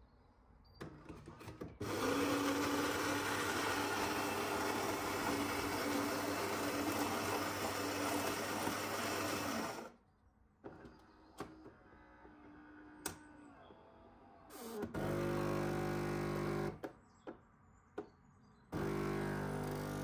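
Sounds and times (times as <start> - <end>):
coffee machine brewing: 1.8 - 9.9, 18.8 - 20.0
espresso machine grinding beans: 1.8 - 9.9, 14.9 - 16.8, 18.8 - 20.0.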